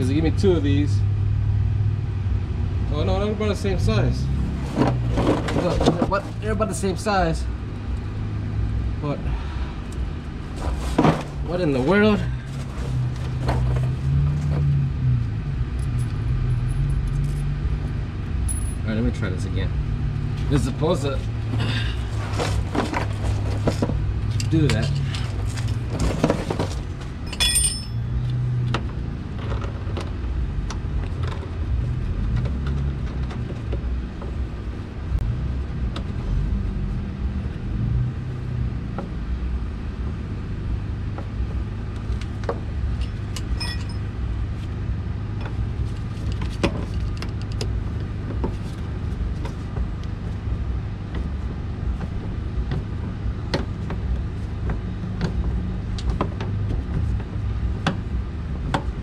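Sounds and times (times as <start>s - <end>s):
hand tool clicks and metallic clinks: 27.3s - 28.4s, 43.0s - 44.0s.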